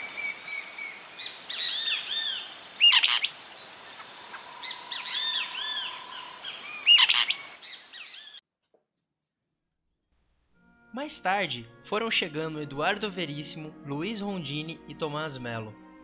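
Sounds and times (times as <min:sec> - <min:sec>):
birds singing: 0:00.0 - 0:08.4
loud sharp bird calls: 0:00.0 - 0:08.4.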